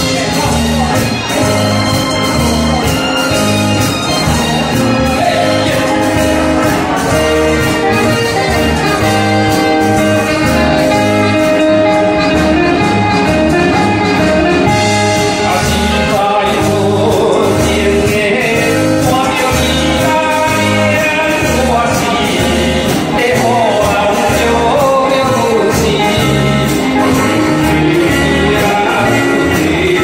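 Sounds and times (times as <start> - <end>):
band playing with steady beat: 0.0 - 30.0
man singing into a microphone: 4.5 - 7.6, 14.8 - 30.0.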